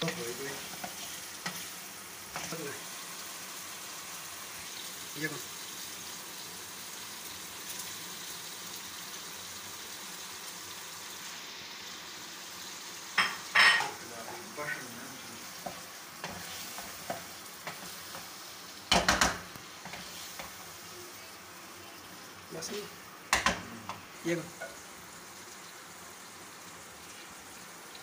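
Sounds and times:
chicken and tomatoes sizzling: 0:00.0 - 0:28.0
wooden spatula scraping a pan: 0:15.5 - 0:18.4, 0:19.8 - 0:20.7.

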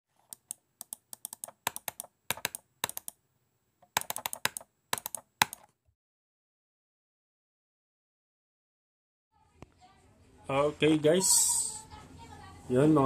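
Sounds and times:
computer keyboard typing: 0:00.2 - 0:03.2, 0:03.8 - 0:05.7.

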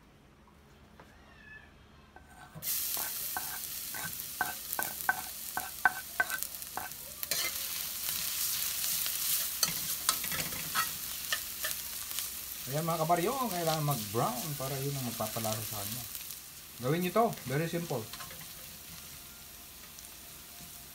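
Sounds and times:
utensils clinking against wok: 0:02.2 - 0:08.2, 0:08.9 - 0:12.0, 0:17.9 - 0:19.2
garlic sizzling in hot oil: 0:02.4 - 0:20.9.

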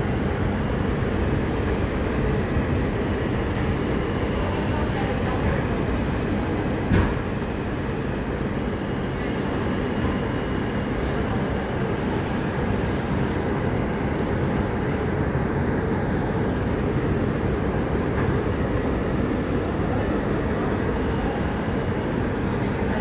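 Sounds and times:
subway car wheels rumbling on rail: 0:00.0 - 0:23.0.

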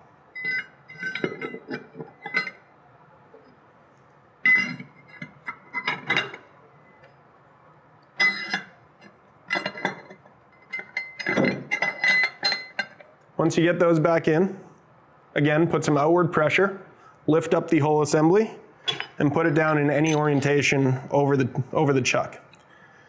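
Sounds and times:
steel jaws clinking on metal: 0:08.2 - 0:08.7, 0:09.5 - 0:13.0, 0:18.9 - 0:19.2.

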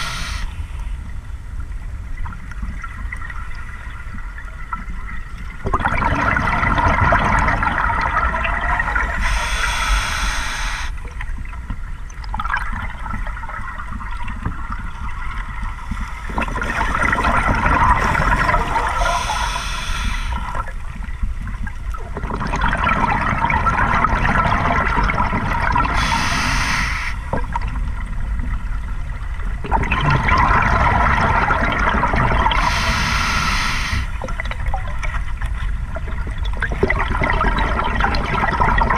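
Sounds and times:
bubbling exhaled air: 0:00.0 - 0:00.6, 0:05.7 - 0:11.1, 0:15.7 - 0:20.8, 0:22.2 - 0:27.6, 0:29.7 - 0:34.6
regulator hiss of in-breaths: 0:00.0 - 0:01.0, 0:09.2 - 0:11.0, 0:18.8 - 0:20.6, 0:26.0 - 0:27.3, 0:32.6 - 0:34.2.

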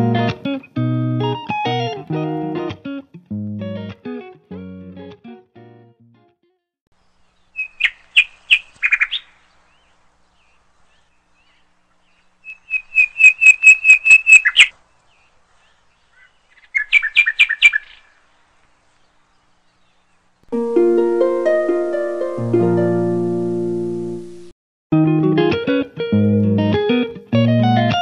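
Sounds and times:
plucked guitar music: 0:00.0 - 0:06.4, 0:20.5 - 0:28.0
songbird chirping: 0:06.9 - 0:22.4.

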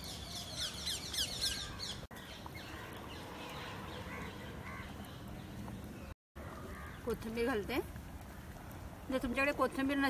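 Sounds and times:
birds calling faintly: 0:00.0 - 0:10.0.

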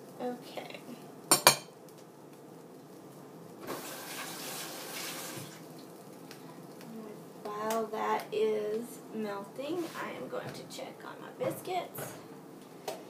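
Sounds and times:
water running from kitchen tap: 0:03.6 - 0:06.2.

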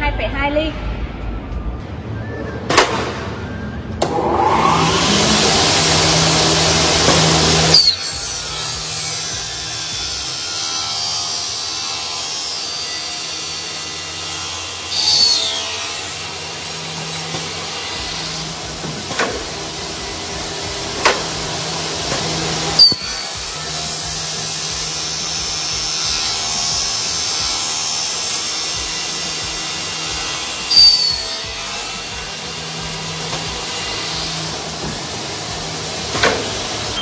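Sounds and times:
rushing noise: 0:03.3 - 0:08.9
aluminium cutting saw whine: 0:04.0 - 0:37.0.

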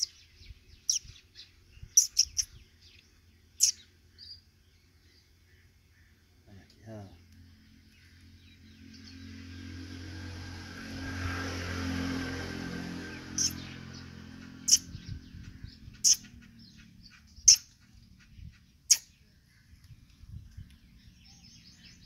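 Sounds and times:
vehicle passing: 0:07.0 - 0:18.7.

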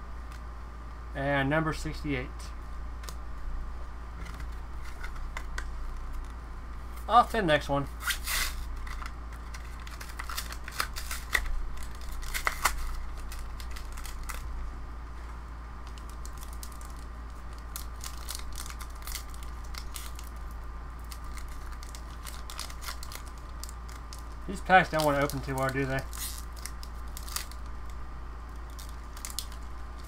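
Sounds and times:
low hum: 0:00.0 - 0:30.0
foil wrapper crinkling and tearing: 0:08.0 - 0:14.5, 0:15.8 - 0:30.0.

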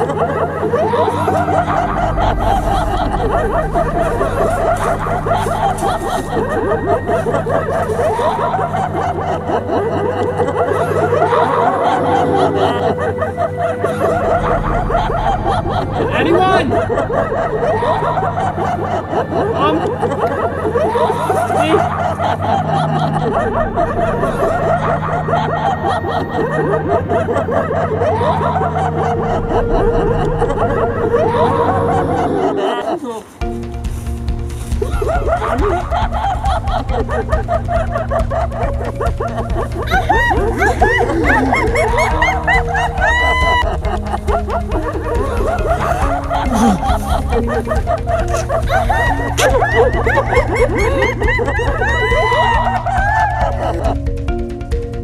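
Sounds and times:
low hum: 0:00.0 - 0:32.5
low steady drone: 0:00.0 - 0:32.6, 0:33.4 - 0:55.0
many voices snickering and chuckling: 0:00.0 - 0:55.0
people laughing: 0:00.0 - 0:55.0.

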